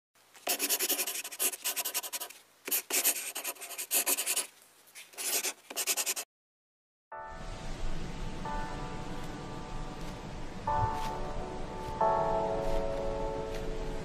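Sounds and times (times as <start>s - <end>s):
pencil scribbling on paper: 0.4s - 6.2s.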